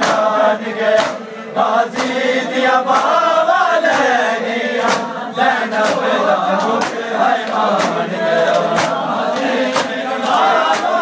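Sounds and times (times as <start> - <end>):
men chanting a lament: 0.0 - 11.0
open-handed chest slaps: 1.0 - 1.2, 2.9 - 3.2, 4.8 - 5.1.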